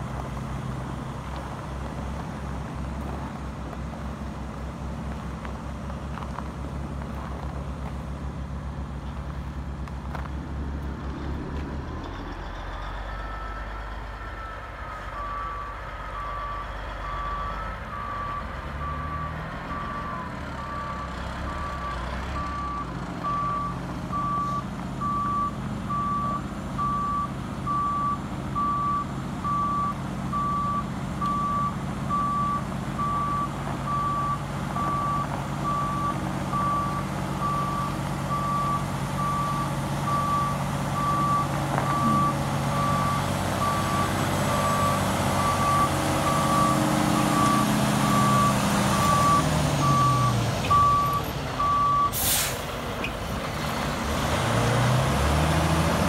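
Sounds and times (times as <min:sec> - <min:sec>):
diesel engine running: 0:00.0 - 0:56.0
truck reversing alarm beeping: 0:11.4 - 0:53.2
air-brake hiss: 0:52.1 - 0:52.8.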